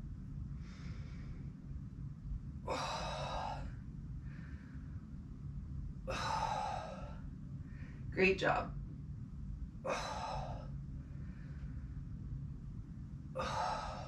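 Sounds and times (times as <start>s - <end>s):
low steady hum: 0.0s - 14.0s
woman exhaling hard: 2.6s - 3.7s, 6.1s - 7.2s, 9.9s - 10.7s, 13.4s - 14.0s.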